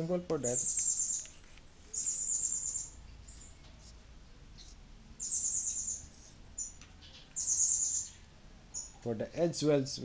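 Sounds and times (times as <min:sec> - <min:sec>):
marker pen squeaking: 0:00.5 - 0:04.0, 0:04.6 - 0:08.2.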